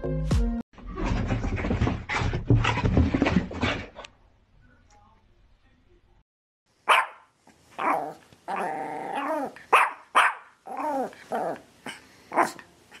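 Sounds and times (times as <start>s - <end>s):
dog barking: 6.8s - 8.2s, 9.2s - 10.6s, 12.3s - 12.6s.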